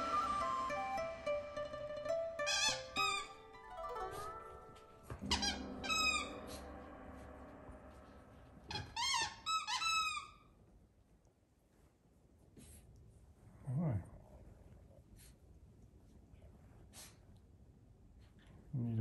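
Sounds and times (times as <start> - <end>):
squeaky dog toy squeaking: 2.0 - 6.4, 8.7 - 10.4.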